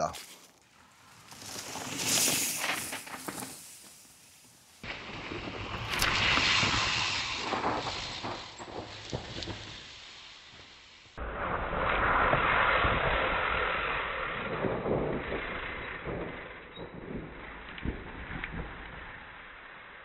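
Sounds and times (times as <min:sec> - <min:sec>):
bike tyre noise on dirt: 0:00.0 - 0:20.0.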